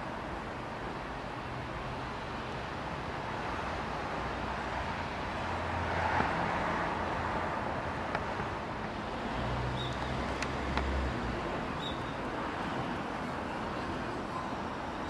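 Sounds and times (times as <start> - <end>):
road traffic hum: 0.0 - 15.0.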